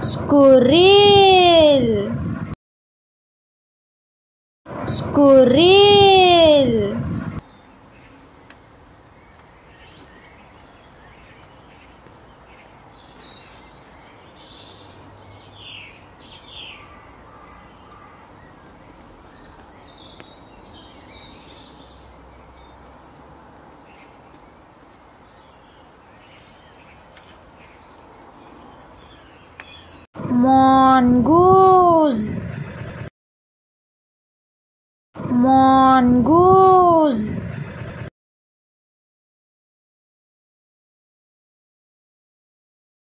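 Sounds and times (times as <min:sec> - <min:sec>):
bird chirps and calls: 0:07.4 - 0:08.5, 0:09.2 - 0:30.0.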